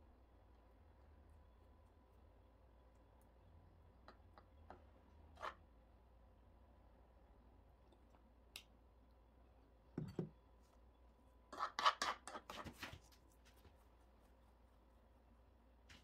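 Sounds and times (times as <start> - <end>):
fork scraping on wooden board: 11.5 - 12.6.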